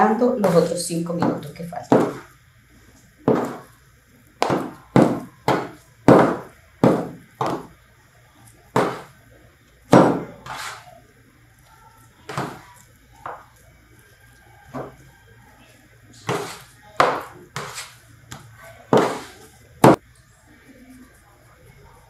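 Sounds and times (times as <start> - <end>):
dough slapped on table: 0.4 - 2.3, 3.3 - 3.7, 4.4 - 7.7, 8.8 - 9.2, 10.0 - 10.8, 12.3 - 12.6, 16.3 - 18.4, 19.0 - 20.0.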